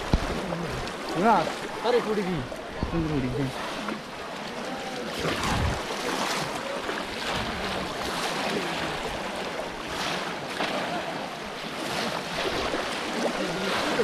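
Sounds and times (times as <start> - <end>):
water splashing around wading legs: 0.0 - 14.0.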